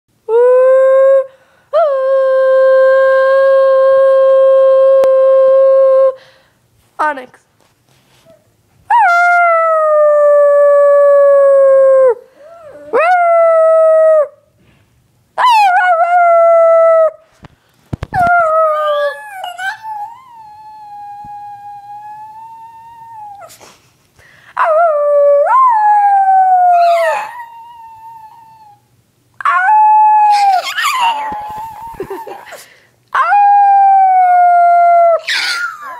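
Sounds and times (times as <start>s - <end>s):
dog howling: 18.2s - 23.5s, 24.6s - 28.8s, 29.4s - 32.5s, 33.2s - 35.9s.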